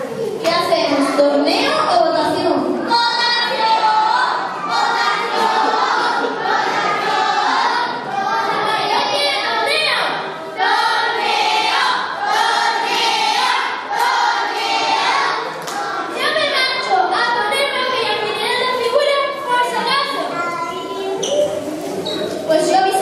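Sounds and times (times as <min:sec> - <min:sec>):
group of voices singing: 0:03.3 - 0:09.2, 0:10.6 - 0:16.2.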